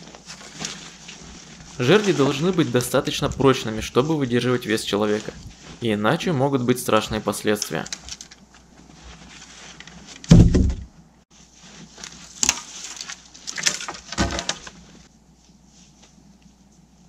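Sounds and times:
wooden poles thudding: 0:10.2 - 0:10.9, 0:13.6 - 0:14.8
wooden poles knocking: 0:10.3 - 0:10.9.

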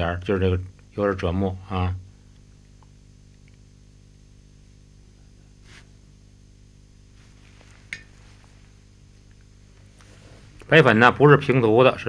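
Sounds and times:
low room hum: 0:00.0 - 0:12.0
faint rustle: 0:07.0 - 0:10.8.

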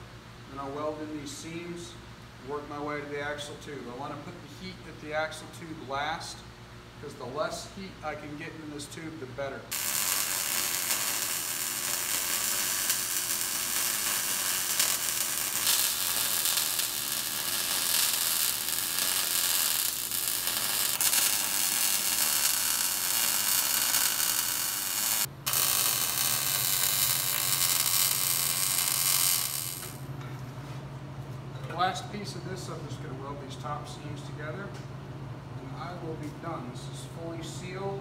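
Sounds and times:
welding arc crackling and hissing: 0:09.7 - 0:30.1.

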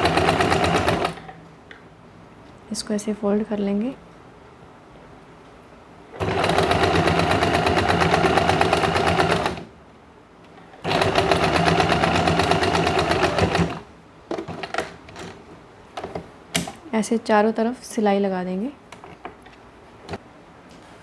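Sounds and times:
sewing machine stitching: 0:00.0 - 0:01.3, 0:06.2 - 0:09.7, 0:10.8 - 0:13.8.

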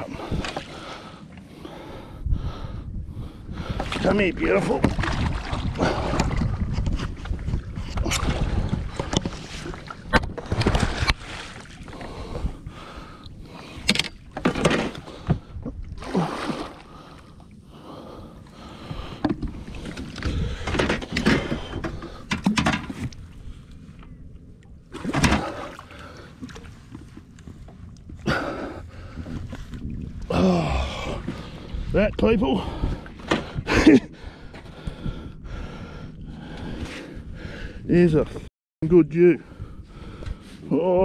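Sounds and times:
wind rumble on microphone: 0:00.0 - 0:24.9, 0:26.4 - 0:38.5, 0:39.4 - 0:41.0
fish hauled aboard boat bumping: 0:13.7 - 0:17.0, 0:17.9 - 0:23.1, 0:24.9 - 0:29.6.

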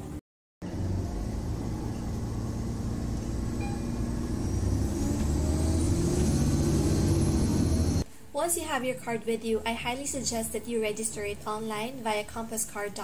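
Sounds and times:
bus engine and road rumble: 0:00.0 - 0:08.0
faint rising whine: 0:00.6 - 0:08.0.

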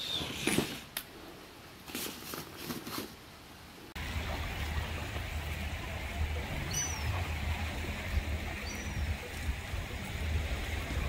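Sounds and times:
outdoor wind rumble and hiss: 0:00.0 - 0:11.0.

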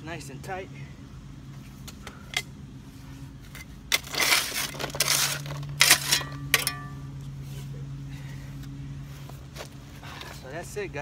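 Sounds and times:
shovel scraping soil: 0:03.4 - 0:07.7.

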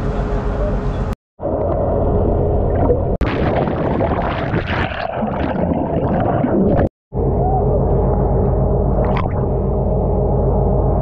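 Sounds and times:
underwater bubbles and gurgling: 0:01.4 - 0:06.9, 0:08.0 - 0:09.5
person plunging into water: 0:02.6 - 0:06.9
steady low hum: 0:07.2 - 0:11.0.

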